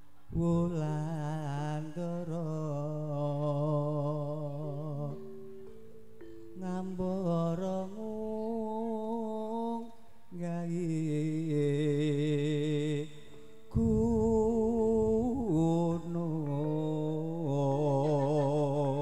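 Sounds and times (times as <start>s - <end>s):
man singing with vibrato: 0.3s - 19.0s
low rumble: 13.7s - 16.3s.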